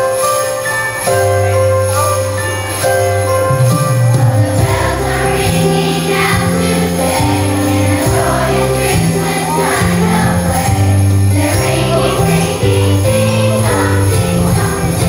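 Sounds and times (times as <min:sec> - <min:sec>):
jingling bells: 0:00.0 - 0:15.0
children's choir singing: 0:04.1 - 0:15.0.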